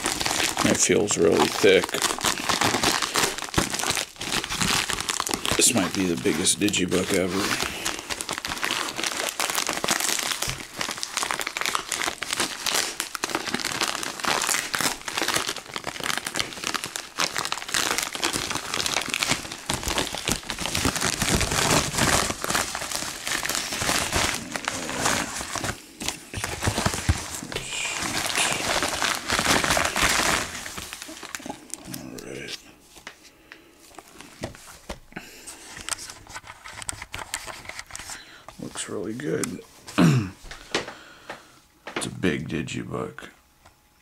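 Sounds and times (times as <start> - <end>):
plastic mailer crinkling: 0.0 - 32.6.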